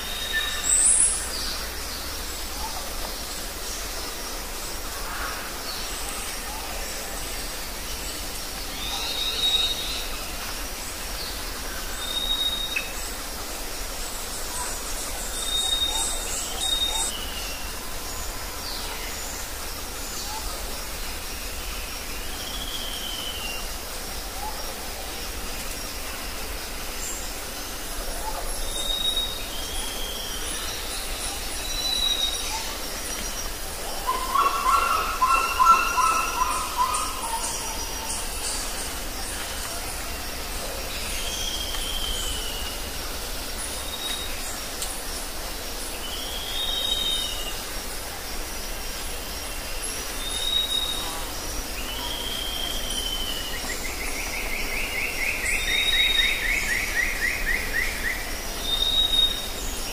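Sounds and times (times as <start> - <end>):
background hiss: 0.0 - 59.9.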